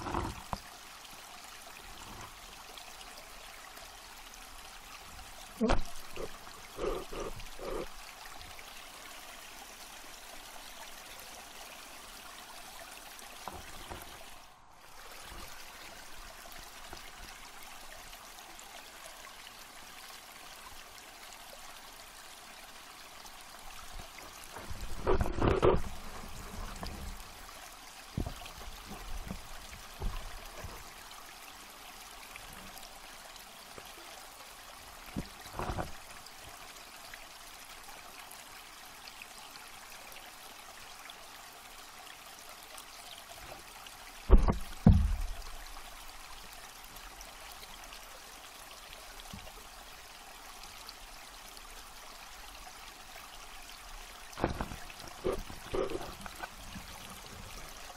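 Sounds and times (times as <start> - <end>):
water rushing underwater: 5.5 - 8.0, 23.9 - 30.9, 54.3 - 57.9
dull knocks: 44.3 - 45.4.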